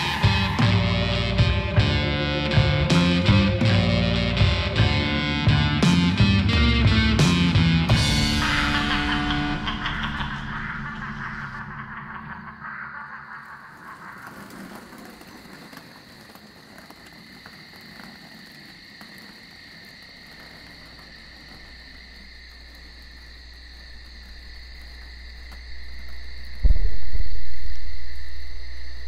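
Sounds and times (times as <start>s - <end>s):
crickets chirring: 0.0s - 29.0s
low rumbling drone: 7.8s - 13.2s
frogs calling: 7.9s - 26.9s.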